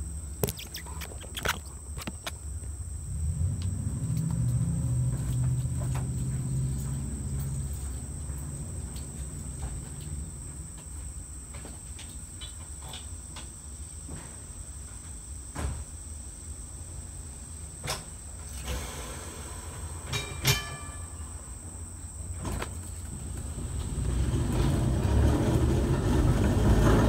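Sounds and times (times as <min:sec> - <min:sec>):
low hum: 0:00.0 - 0:10.8
insects chirring: 0:00.0 - 0:24.8.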